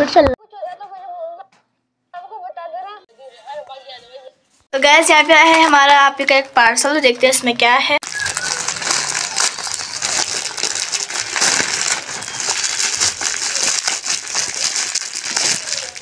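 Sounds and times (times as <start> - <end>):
plastic bag crinkling: 8.0 - 16.0.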